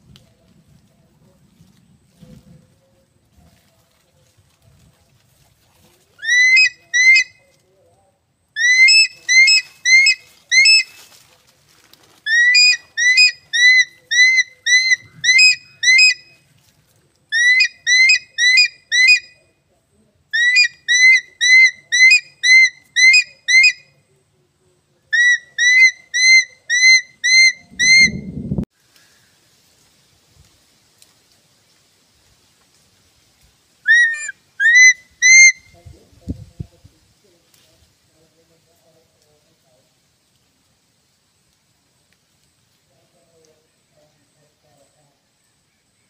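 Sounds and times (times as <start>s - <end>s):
eagle high whistled calls: 6.2s - 7.4s, 8.6s - 11.0s, 12.3s - 16.4s, 17.4s - 19.3s, 20.4s - 23.9s, 25.2s - 28.3s, 33.9s - 35.8s.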